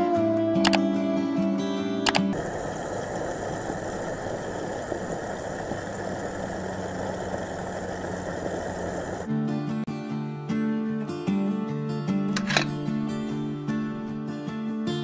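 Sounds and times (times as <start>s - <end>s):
motor humming: 2.1s - 9.3s.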